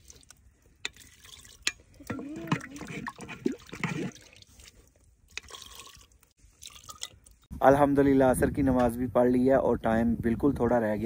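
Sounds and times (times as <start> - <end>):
gravy pouring and dripping: 0.0 - 7.5.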